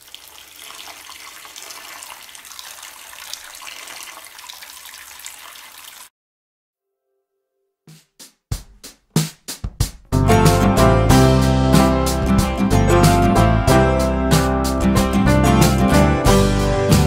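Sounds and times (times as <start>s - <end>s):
water splashing over peppers: 0.0s - 6.1s.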